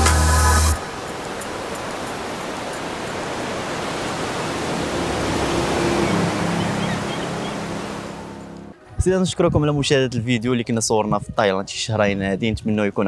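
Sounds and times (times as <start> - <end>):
surf washing over rocks: 0.0 - 8.4.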